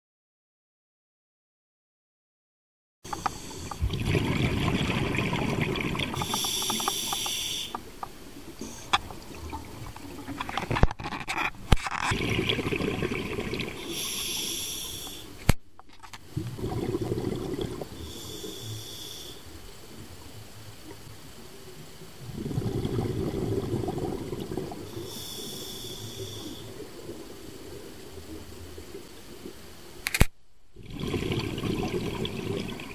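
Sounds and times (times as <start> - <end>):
regulator hissing inhale: 3.1 - 3.8, 6.1 - 7.9, 8.6 - 9.0, 13.8 - 15.4, 17.9 - 19.6, 24.9 - 26.9
exhaust bubbles rumbling: 3.6 - 6.3, 12.1 - 13.9, 16.3 - 18.2, 22.2 - 25.1, 30.8 - 32.9
sharp clicks: 30.0 - 30.4.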